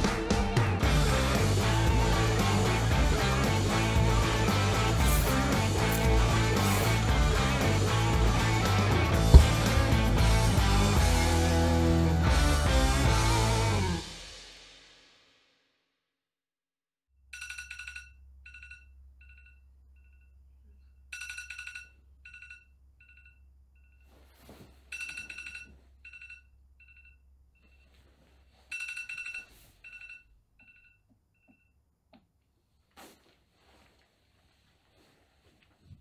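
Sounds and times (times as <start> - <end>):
electronic phone ringtone: 24.9 - 27.9, 28.7 - 31.0.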